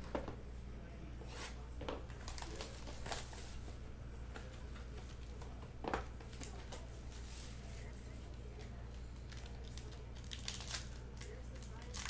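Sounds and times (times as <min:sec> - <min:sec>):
plastic shrink-wrap tearing and crinkling: 0:02.2 - 0:03.6, 0:09.3 - 0:12.0.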